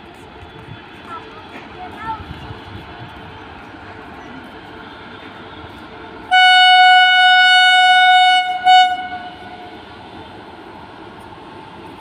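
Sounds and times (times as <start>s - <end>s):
locomotive horn blasts: 6.2s - 9.8s.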